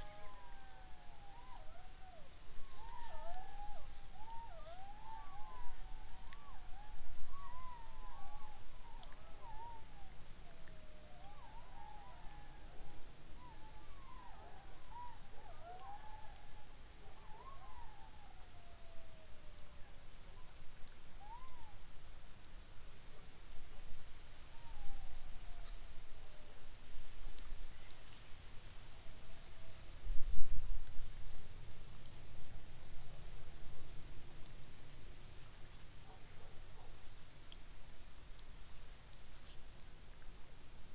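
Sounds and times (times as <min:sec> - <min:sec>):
jackals howling: 0:00.0 - 0:09.8
crickets chirping: 0:00.0 - 0:40.9.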